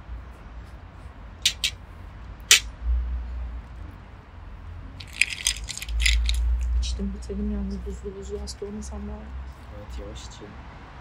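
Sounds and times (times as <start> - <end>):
ice rattling in a glass: 5.0 - 6.5.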